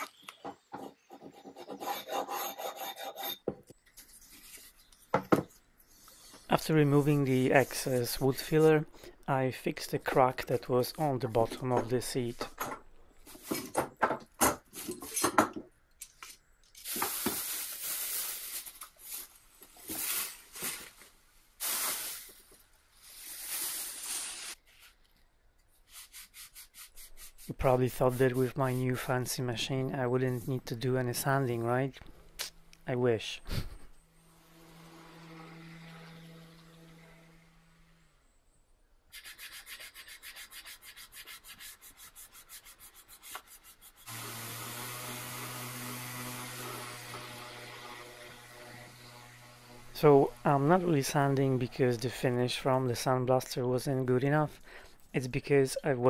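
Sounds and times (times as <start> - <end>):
hand sanding wood: 1.3 - 3.4, 25.9 - 29.4, 39.1 - 51.6
plastic sheet crinkling: 16.8 - 25.0
random orbital sander running: 34.1 - 38.1, 44.1 - 51.0.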